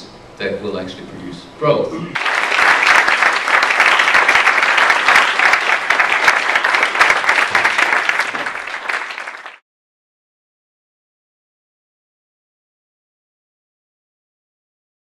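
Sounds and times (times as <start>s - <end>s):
audience applause: 2.2s - 9.6s.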